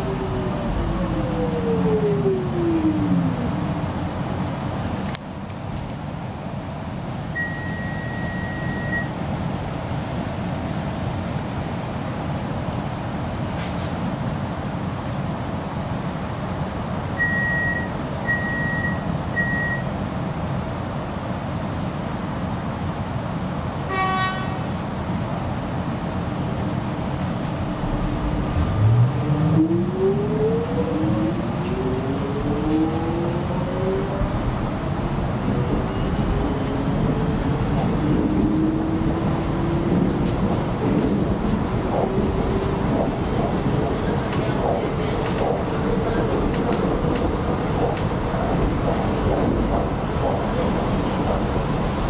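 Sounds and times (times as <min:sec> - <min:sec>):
low hum of standing train: 0:00.0 - 0:52.0
rumble of wheels on rail: 0:00.0 - 0:52.0
high door warning beeps: 0:07.4 - 0:09.2, 0:17.2 - 0:19.9.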